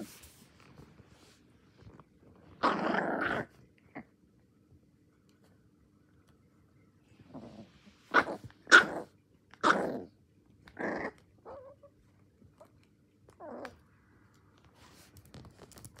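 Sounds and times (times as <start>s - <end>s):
puppy growling: 2.3s - 4.2s, 7.2s - 14.0s.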